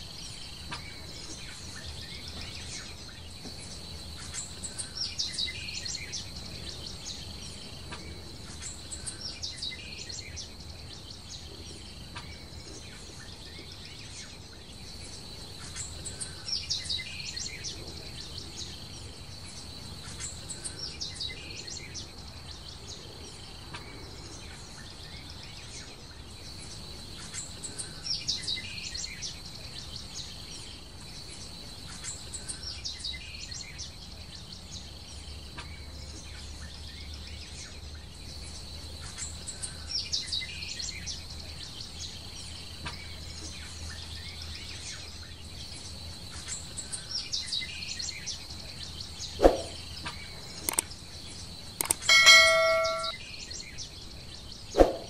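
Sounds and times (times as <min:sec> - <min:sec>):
bird chirping: 0:00.0 - 0:54.9.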